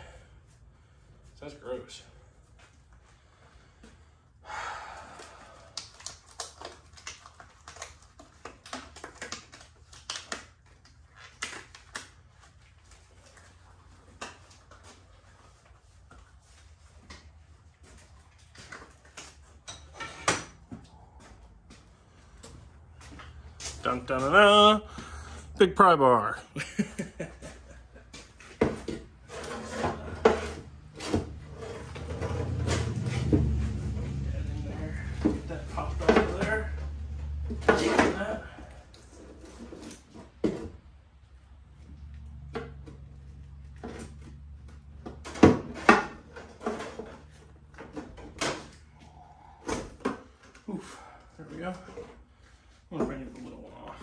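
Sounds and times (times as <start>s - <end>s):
rustling scrape: 29.2s - 33.8s.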